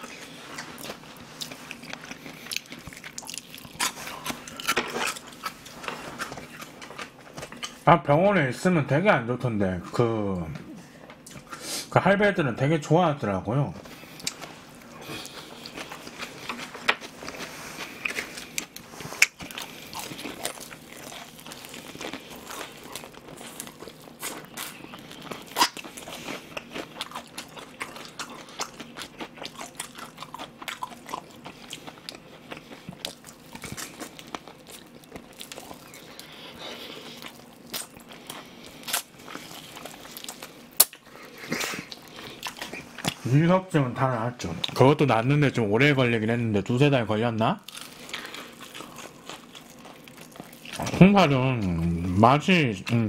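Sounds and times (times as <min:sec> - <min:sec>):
chewing crisp fried chicken: 0:00.0 - 0:07.8, 0:13.8 - 0:43.3, 0:47.6 - 0:52.2.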